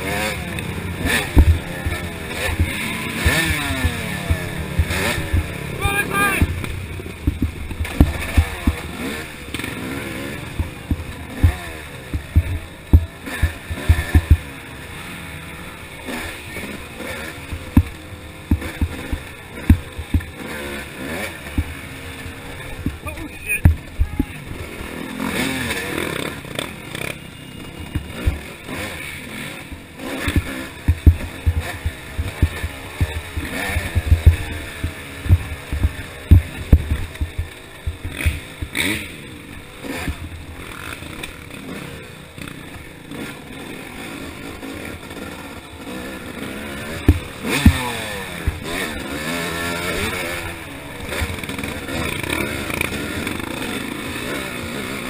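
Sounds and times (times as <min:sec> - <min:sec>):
dirt bike engine revving: 0:00.0 - 0:55.0
bike banging over rocks: 0:01.0 - 0:09.1, 0:10.5 - 0:14.5, 0:17.5 - 0:20.5, 0:29.8 - 0:38.8.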